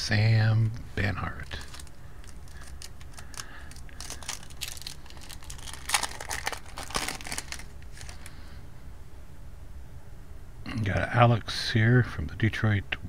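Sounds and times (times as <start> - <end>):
card pack wrapper crinkling and tearing: 1.4 - 8.4.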